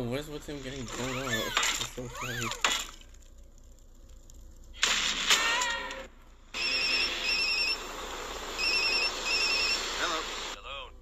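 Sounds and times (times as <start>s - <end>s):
loud burst of noise: 6.5s - 10.6s.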